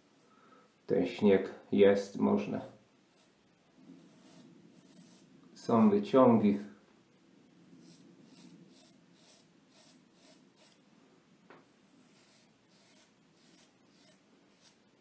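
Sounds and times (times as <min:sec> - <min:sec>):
razor scraping stubble: 0:03.1 - 0:05.8, 0:07.8 - 0:10.8, 0:12.0 - 0:14.8.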